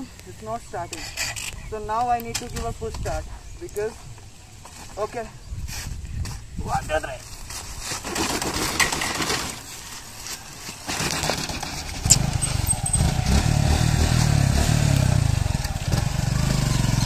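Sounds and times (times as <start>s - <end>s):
motorcycle engine starting and running: 10.8s - 17.0s.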